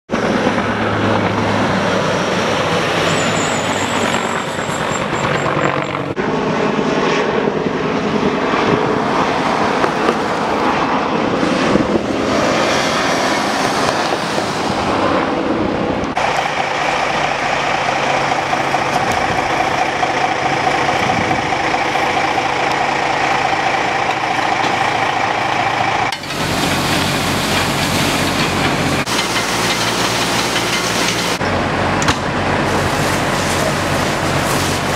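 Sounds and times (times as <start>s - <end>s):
truck passing: 0.1s - 6.3s, 7.9s - 34.9s
steady engine hum: 0.1s - 34.9s.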